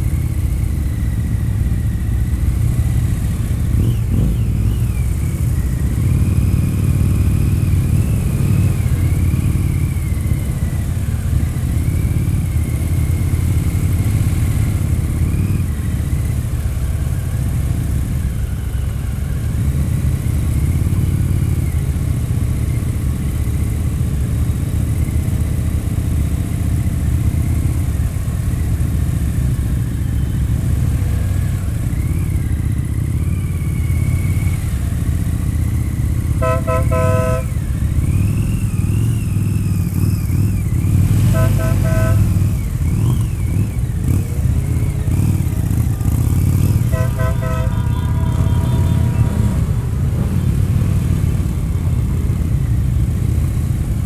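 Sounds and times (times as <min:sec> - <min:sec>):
motorcycle engine rumbling: 0:00.0 - 0:54.0
vehicle horn toots: 0:36.4 - 0:37.7, 0:41.2 - 0:42.5, 0:46.6 - 0:49.7.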